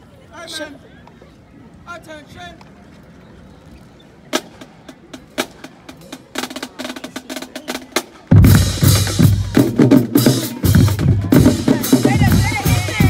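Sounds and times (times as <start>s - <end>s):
marching drum line playing: 4.3s - 13.0s.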